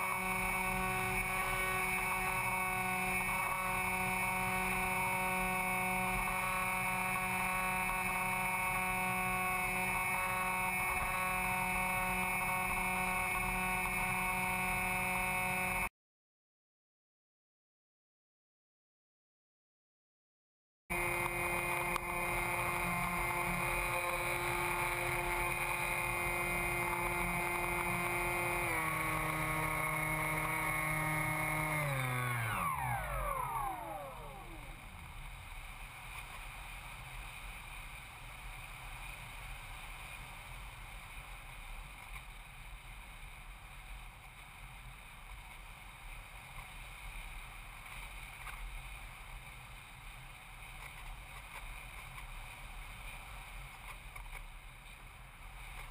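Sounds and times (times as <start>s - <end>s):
electric motor whine: 0.0s - 15.9s, 20.9s - 35.8s.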